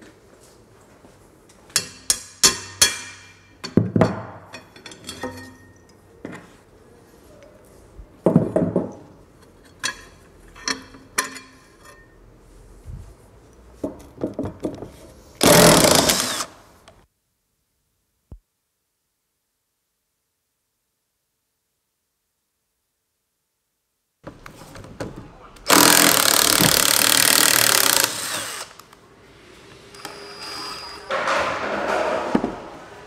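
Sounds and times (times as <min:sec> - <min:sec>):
tools clanking on metal: 0:01.7 - 0:06.0, 0:09.4 - 0:12.2.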